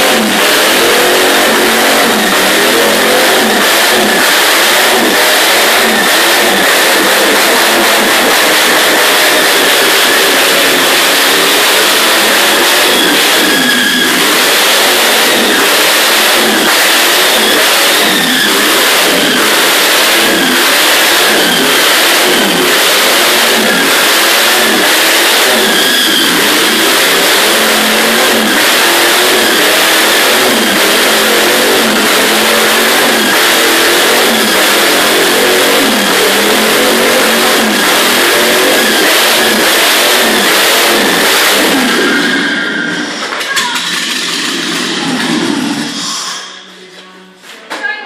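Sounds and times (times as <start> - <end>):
tyres spinning: 0.0 - 46.0
engine revving hard: 0.0 - 46.6.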